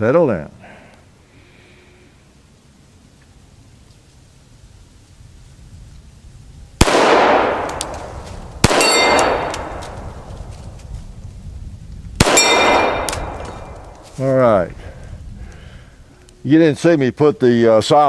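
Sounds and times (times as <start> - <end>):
pistol shots echoing: 6.8 - 10.3, 12.2 - 13.9
steel target clang: 8.6 - 10.0, 12.2 - 13.8.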